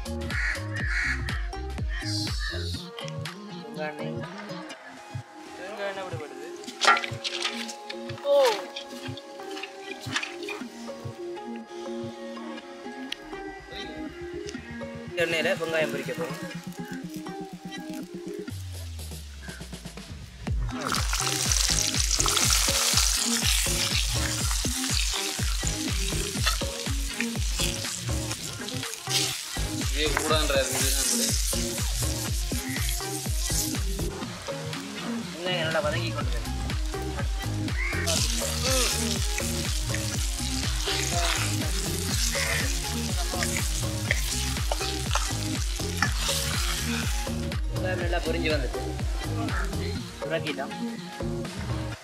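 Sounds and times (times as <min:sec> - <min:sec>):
background music with beat: 0:00.0 - 0:52.0
shallots sizzling in hot oil: 0:20.7 - 0:34.1, 0:34.7 - 0:47.4.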